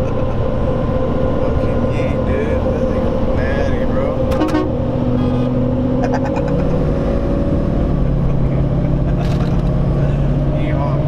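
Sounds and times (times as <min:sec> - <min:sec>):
diesel engine drone: 0:00.0 - 0:11.0
highway road noise: 0:00.0 - 0:11.0.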